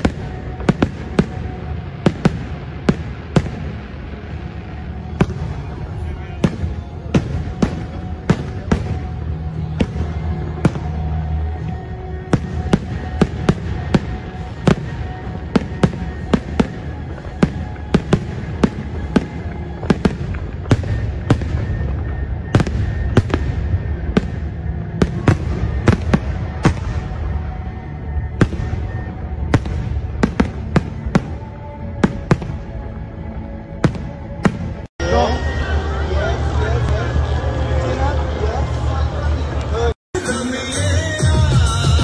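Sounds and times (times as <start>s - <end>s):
fireworks bangs: 0.0s - 32.8s.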